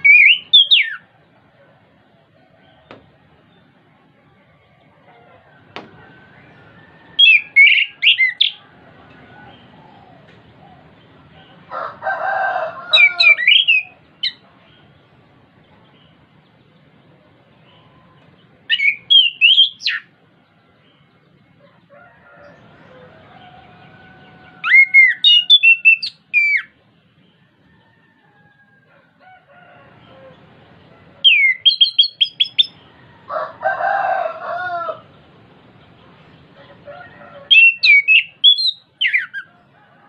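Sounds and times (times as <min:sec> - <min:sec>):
harsh rasping bird call: 0:06.4 - 0:08.6, 0:11.6 - 0:14.4, 0:23.4 - 0:26.8.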